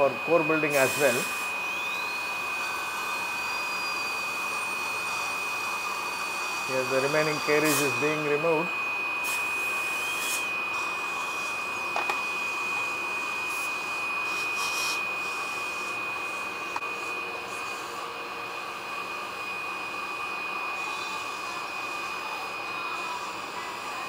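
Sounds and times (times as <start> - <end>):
dental drill whine: 0.0 - 24.0
dental suction hiss: 0.7 - 2.0, 7.2 - 8.0, 9.2 - 11.6, 13.4 - 16.0.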